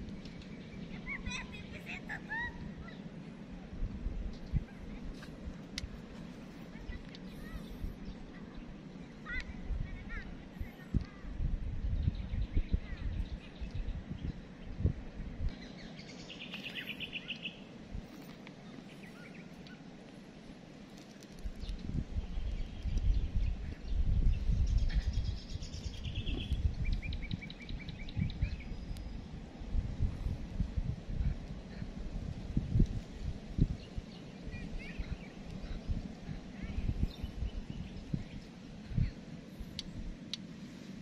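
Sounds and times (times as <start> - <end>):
wind buffeting microphone: 0.0 - 41.0
bird chirps: 15.5 - 17.7, 21.6 - 29.2.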